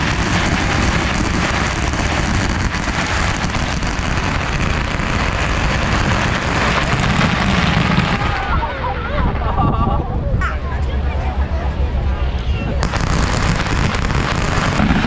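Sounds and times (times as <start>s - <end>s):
firecrackers crackling: 0.0s - 8.9s, 12.8s - 15.0s.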